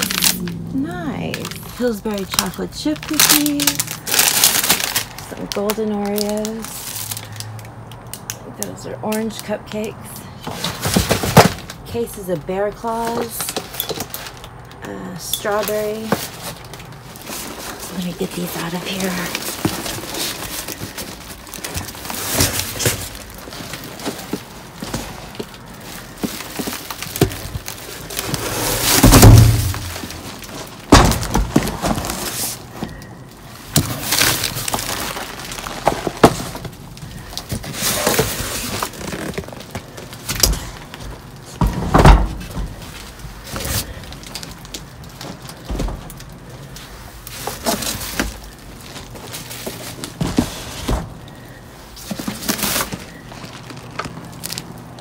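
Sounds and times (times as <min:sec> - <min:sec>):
plastic bags rustling: 0:00.0 - 0:55.0
cardboard boxes thudding: 0:10.5 - 0:11.8, 0:15.8 - 0:33.0, 0:33.7 - 0:44.0, 0:47.3 - 0:53.7.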